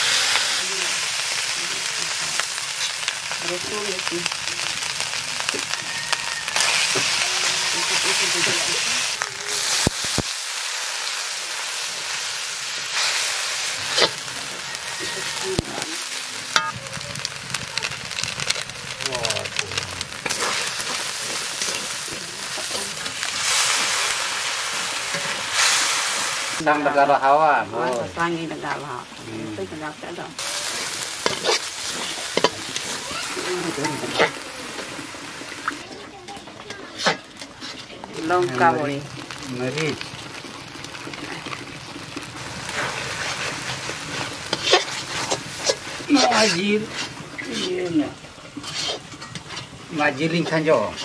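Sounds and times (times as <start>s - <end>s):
masala sizzling in oil: 0.0s - 51.0s
metal spatula scraping a pan: 12.8s - 16.8s, 20.1s - 26.4s, 30.4s - 36.0s, 36.6s - 38.7s, 42.6s - 51.0s.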